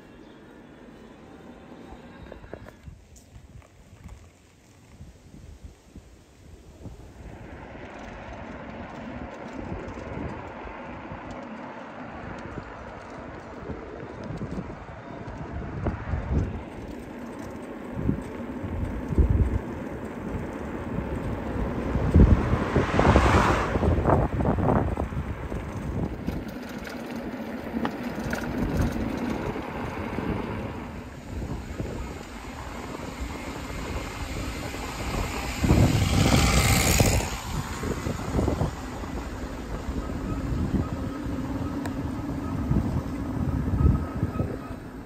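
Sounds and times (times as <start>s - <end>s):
road rumble: 0.0s - 45.0s
wind rush: 4.9s - 11.4s, 12.1s - 17.0s, 17.9s - 26.8s, 28.2s - 45.0s
car passing close by: 21.2s - 26.0s.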